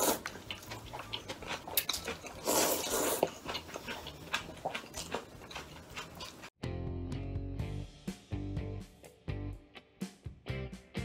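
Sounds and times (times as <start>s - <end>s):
person slurping noodles: 0.0s - 6.5s
wet chewing clicks: 0.0s - 6.6s.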